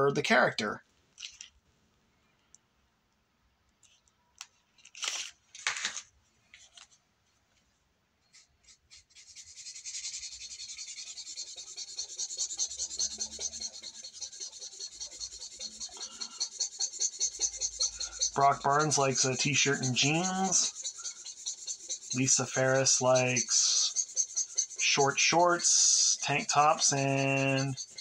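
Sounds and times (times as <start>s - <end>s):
sketchbook rustling: 3.8s - 7.7s
pencil scratching on paper: 8.3s - 28.0s.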